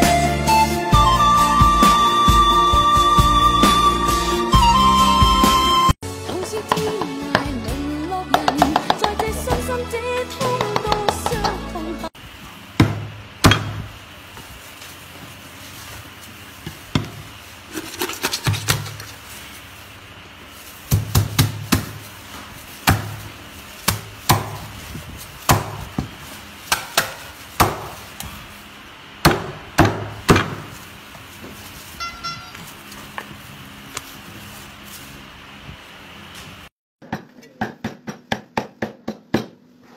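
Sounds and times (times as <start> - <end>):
cleaver chopping on wooden board: 12.8 - 13.9, 22.8 - 23.2, 23.9 - 24.7, 25.5 - 26.1, 26.7 - 28.0, 29.2 - 30.7.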